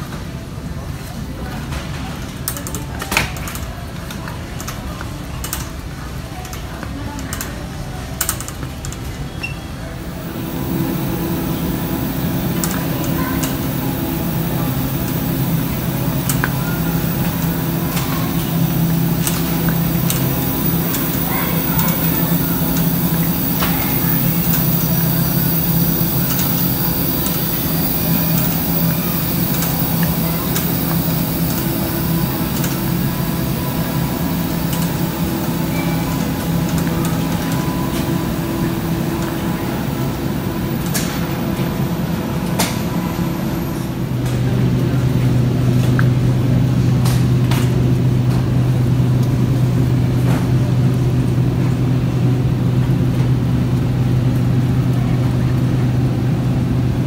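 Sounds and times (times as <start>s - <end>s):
low hum and rumble: 9.9s - 57.0s.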